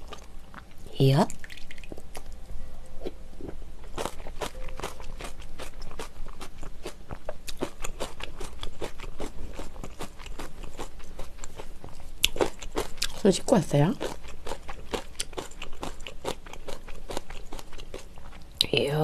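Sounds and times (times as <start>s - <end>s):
wet chewing mouth clicks: 0.0s - 2.4s.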